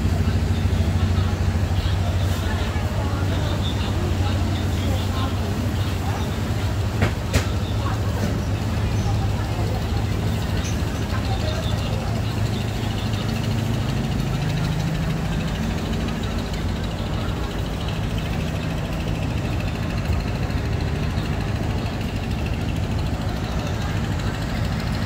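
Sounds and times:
street traffic noise: 0:00.0 - 0:25.0
truck engine idling: 0:00.0 - 0:25.0.

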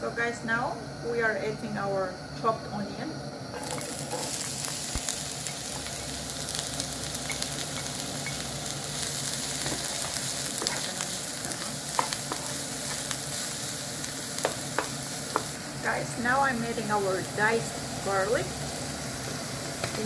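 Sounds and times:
onion sizzling in oil: 0:00.0 - 0:20.0
wooden spoon knocking on pan: 0:14.4 - 0:15.6.

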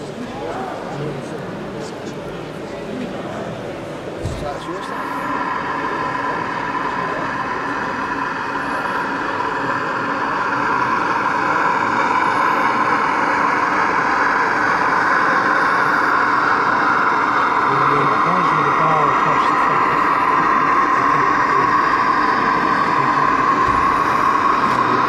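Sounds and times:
model railcar running: 0:04.7 - 0:25.0.

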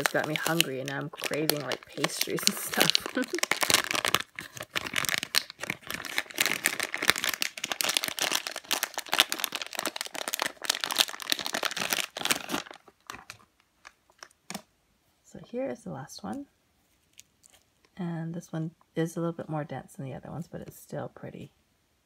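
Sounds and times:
plastic bag crinkling: 0:00.0 - 0:14.7.

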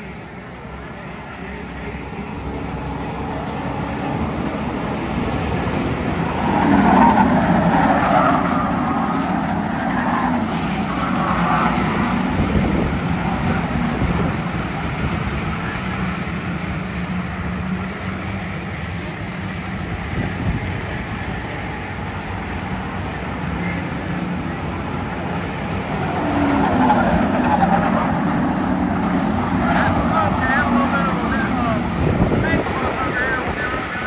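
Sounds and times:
race car engines on track: 0:00.0 - 0:34.0.

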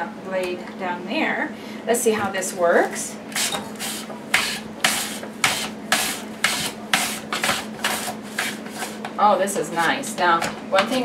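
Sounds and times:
potato slicing on mandoline blades: 0:03.3 - 0:09.1.

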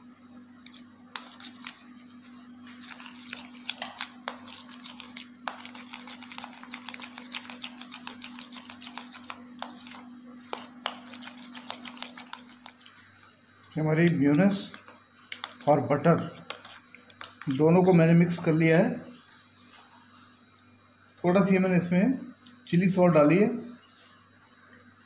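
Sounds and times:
spoon stirring in plastic bowl: 0:00.6 - 0:18.6.

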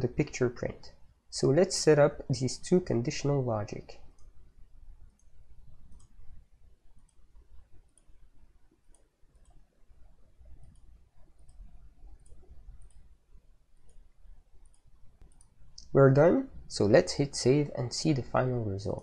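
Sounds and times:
computer mouse clicks: 0:05.0 - 0:06.4, 0:07.0 - 0:13.2, 0:13.8 - 0:15.9.

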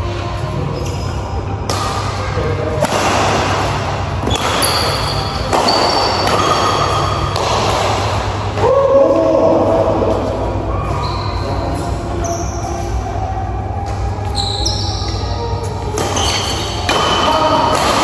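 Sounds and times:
rackets striking shuttlecock: 0:01.6 - 0:02.2, 0:02.8 - 0:08.4, 0:15.9 - 0:18.0
short pitched squeak: 0:14.3 - 0:15.2.

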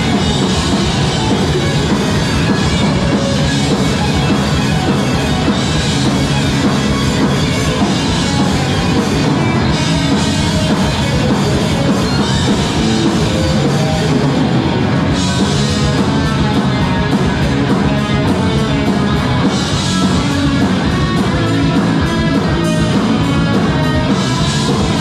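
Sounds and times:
bass guitar: 0:00.0 - 0:25.0
drum kit: 0:00.0 - 0:25.0
electric guitar: 0:00.0 - 0:25.0.

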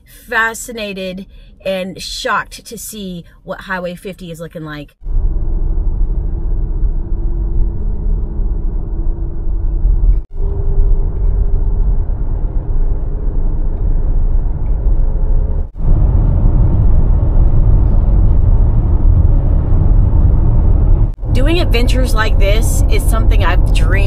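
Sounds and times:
car cabin road and engine noise: 0:05.1 - 0:24.0.

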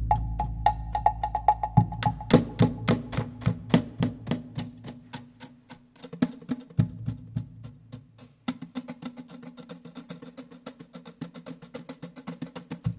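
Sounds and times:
low held tone: 0:00.0 - 0:02.3.

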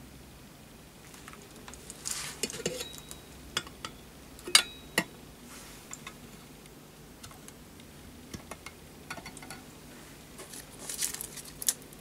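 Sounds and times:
brass metal clicks and taps: 0:08.3 - 0:09.6.

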